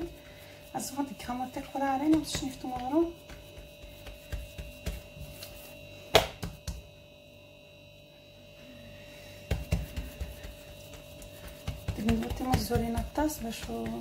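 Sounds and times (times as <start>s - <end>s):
hands patting dough: 0.0s - 6.9s, 9.4s - 14.0s
electrical hum: 0.0s - 14.0s.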